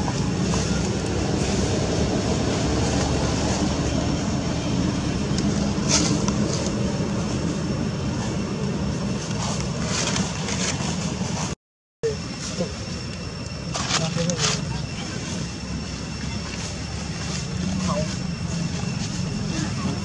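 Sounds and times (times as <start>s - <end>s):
low engine drone: 0.0s - 20.0s.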